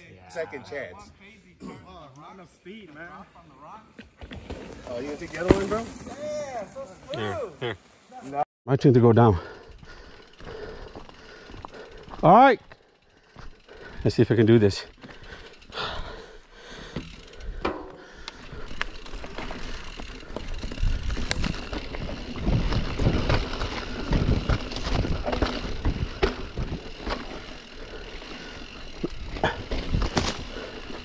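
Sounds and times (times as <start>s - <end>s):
bike rattling and knocking: 16.8s - 31.0s
tyres rumbling over dirt: 19.0s - 31.0s.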